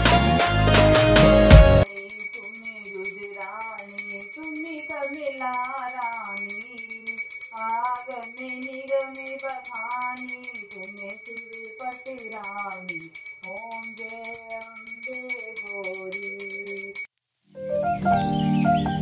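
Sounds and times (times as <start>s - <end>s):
small hand bell ringing: 1.8s - 17.1s
woman singing: 2.8s - 16.5s.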